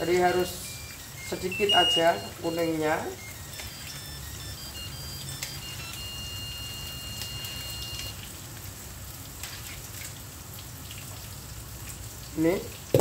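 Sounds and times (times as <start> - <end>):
electronic beeping tune: 0.0 - 8.2
oil sizzling in a wok: 0.0 - 13.0.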